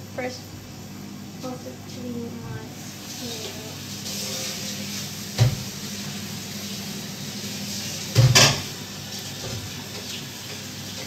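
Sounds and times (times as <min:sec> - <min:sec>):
steady low hum: 0:00.0 - 0:03.8.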